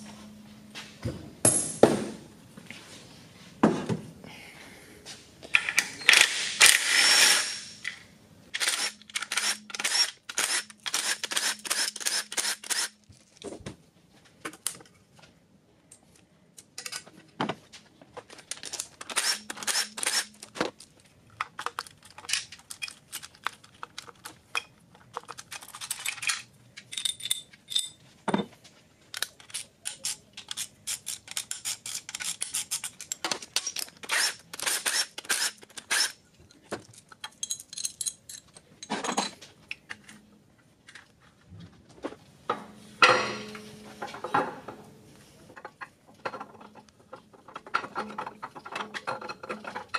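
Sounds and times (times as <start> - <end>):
metal clinks and scrapes: 18.5 - 28.1, 29.2 - 40.2.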